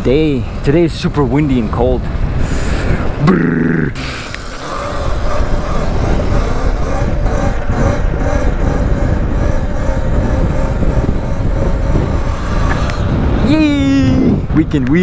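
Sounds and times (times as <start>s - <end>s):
wind buffeting microphone: 0.0s - 15.0s
electric motor whine: 4.0s - 13.5s.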